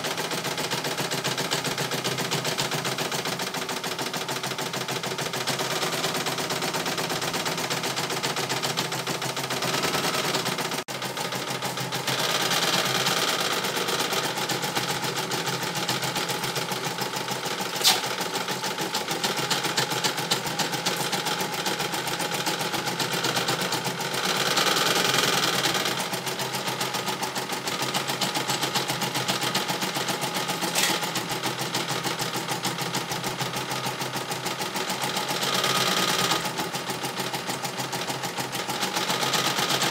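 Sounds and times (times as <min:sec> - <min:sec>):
embroidery machine needle rattle: 0:00.3 - 0:34.2
sharp click: 0:17.8 - 0:18.2.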